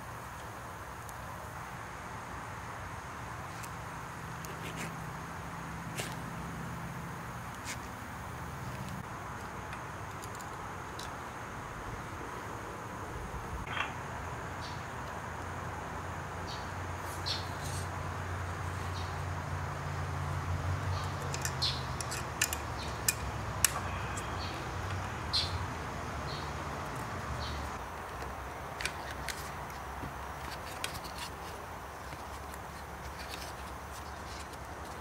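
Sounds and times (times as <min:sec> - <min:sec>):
bicycle brake cable clicking: 0:21.0 - 0:23.8.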